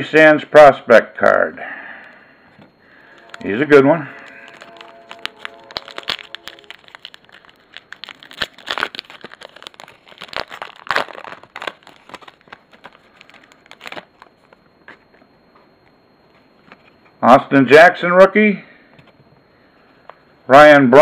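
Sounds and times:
foil pack crinkling and tearing: 3.0 - 14.6.

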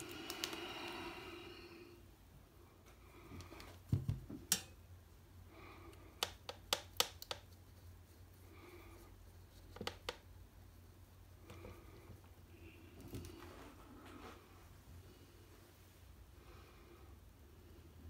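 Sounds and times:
faint low hum: 0.0 - 18.0
sharp clicks and light knocks: 6.2 - 7.6, 9.7 - 10.2.

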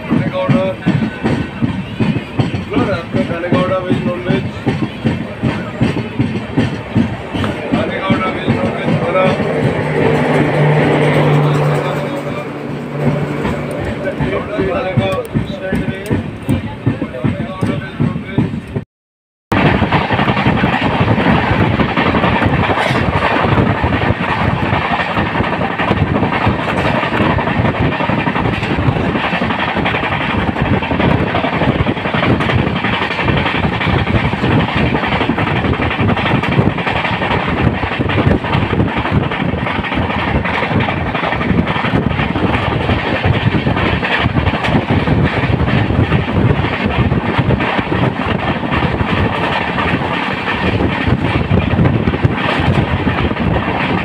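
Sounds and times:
train wheels rumbling on rails: 0.0 - 18.8, 19.5 - 54.0
small rail clicks: 19.6 - 54.0.

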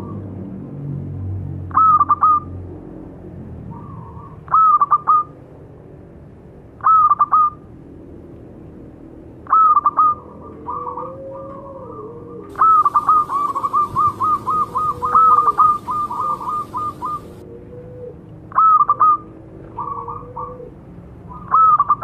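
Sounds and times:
dove cooing: 9.5 - 22.0.

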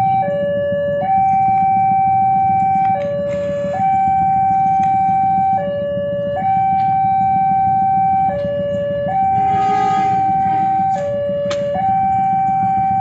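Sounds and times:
level crossing two-tone alarm: 0.0 - 13.0.

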